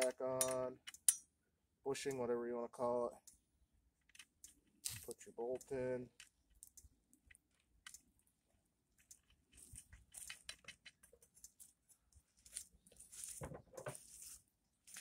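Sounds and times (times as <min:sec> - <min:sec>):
faint clicks and rustles of handling: 0:03.0 - 0:15.0.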